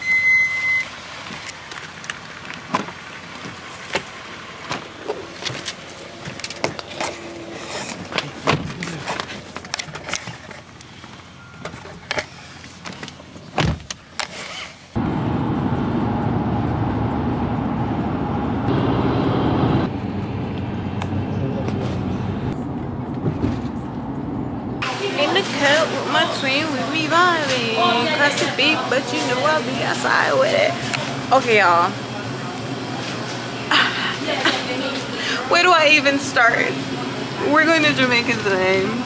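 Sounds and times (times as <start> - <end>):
short beep: 0.0 - 0.9
car engine and road noise: 0.6 - 33.6.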